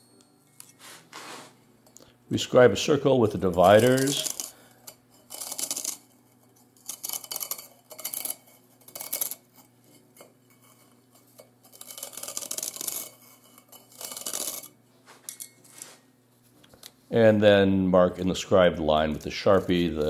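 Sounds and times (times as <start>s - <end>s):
metal point scratching brick: 3.0s - 15.9s.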